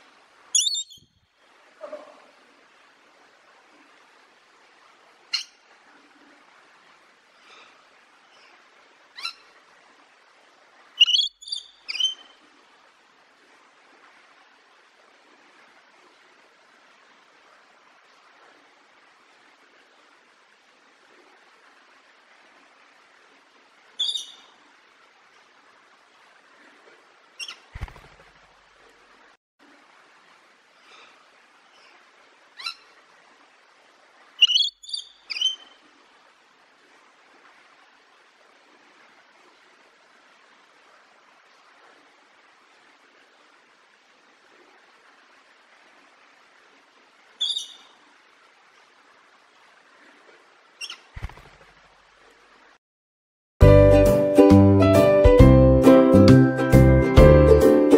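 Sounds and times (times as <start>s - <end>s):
faint outdoor hiss: 0.0s - 52.8s
short high-pitched chirp: 0.6s - 1.0s
high-pitched animal squeaks: 0.6s - 1.1s, 11.0s - 12.2s, 24.0s - 24.4s, 34.4s - 35.6s, 47.4s - 47.8s
lower rough animal call: 1.8s - 2.4s.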